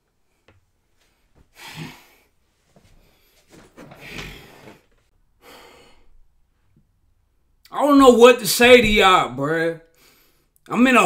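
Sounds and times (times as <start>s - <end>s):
man breathing out hard: 1.5s - 2.3s, 5.4s - 6.2s.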